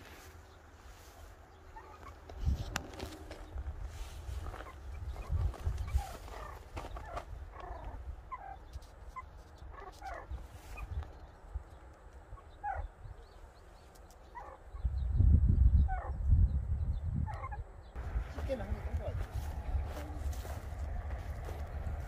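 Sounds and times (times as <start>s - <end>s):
low rumble: 18.0s - 22.0s.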